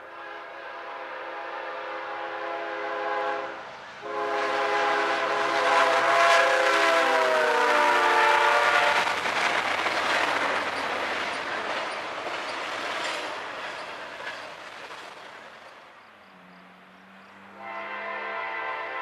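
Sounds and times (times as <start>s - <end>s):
train horn: 0.0s - 9.2s, 17.5s - 19.0s
freight train rumbling past: 0.0s - 19.0s.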